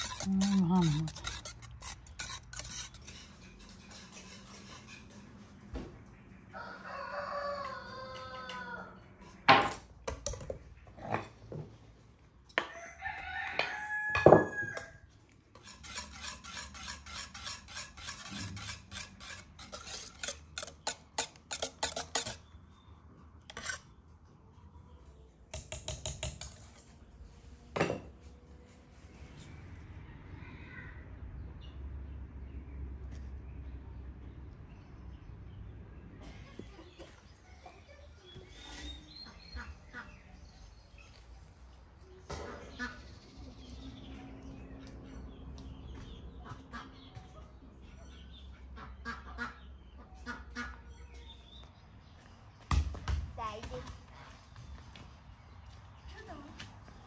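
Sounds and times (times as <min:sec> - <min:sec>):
whisk clattering against metal pot: 0:00.0 - 0:05.2, 0:15.6 - 0:22.4, 0:23.5 - 0:23.8
rooster crowing: 0:06.5 - 0:09.0, 0:12.6 - 0:15.0.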